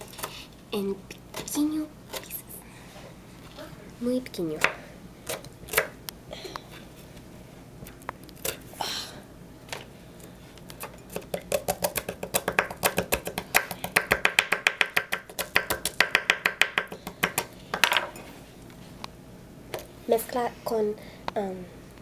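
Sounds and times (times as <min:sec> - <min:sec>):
knife chopping on wooden board: 0:10.8 - 0:17.5.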